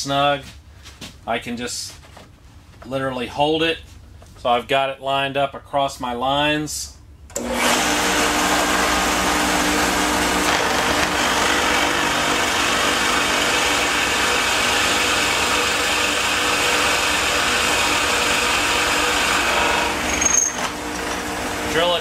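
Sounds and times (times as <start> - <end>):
drill bit boring into wood: 7.3 - 21.8
drill press motor humming: 7.3 - 21.8.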